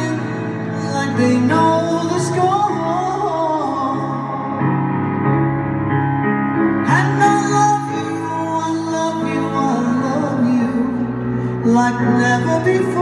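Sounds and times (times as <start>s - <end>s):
grand piano chords: 0.0s - 13.0s
woman singing a slow ballad: 6.9s - 13.0s.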